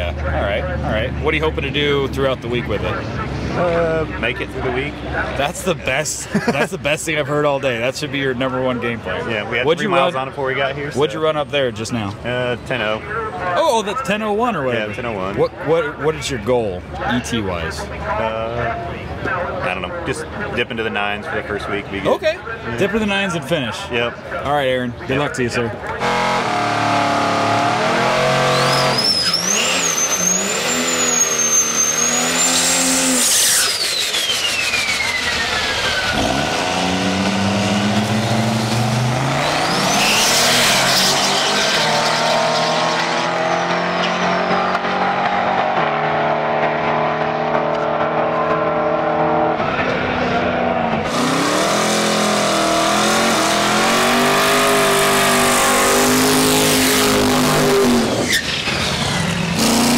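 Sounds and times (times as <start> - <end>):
tires squealing: 25.3 - 59.9
car engine revving: 25.8 - 59.9
truck engine revving: 25.8 - 59.9
turbo whistle: 28.4 - 36.2.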